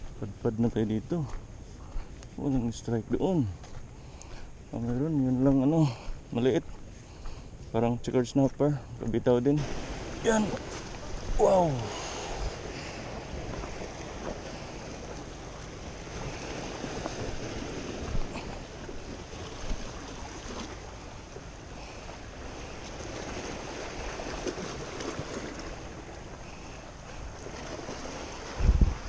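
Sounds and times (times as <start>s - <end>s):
wind buffeting microphone: 8.9s - 29.0s
surf washing against rocks: 9.5s - 29.0s.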